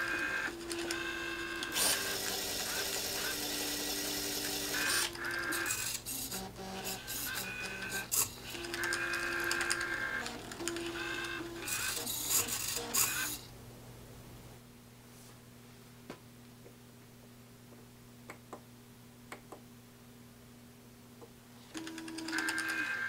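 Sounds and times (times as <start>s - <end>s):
small motors whirring: 0.0s - 13.5s
machine clicks: 4.4s - 13.4s, 21.7s - 22.9s.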